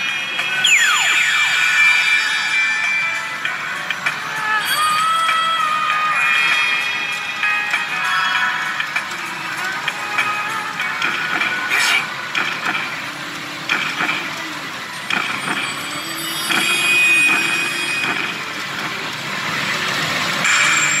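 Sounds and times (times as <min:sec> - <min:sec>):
machine noise and electronic tones: 0:00.0 - 0:04.0, 0:10.2 - 0:21.0
sharp clacks: 0:11.0 - 0:14.5, 0:15.1 - 0:19.1.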